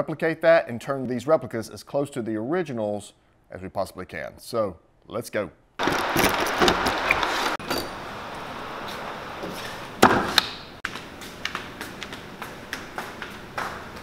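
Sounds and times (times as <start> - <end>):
footsteps on hard floor: 8.8 - 14.0.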